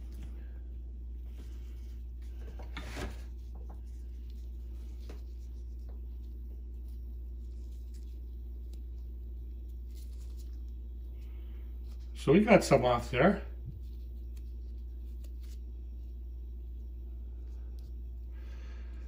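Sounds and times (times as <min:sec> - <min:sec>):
steady low hum: 0:00.0 - 0:19.0
cotton swab rubbing: 0:01.1 - 0:11.2.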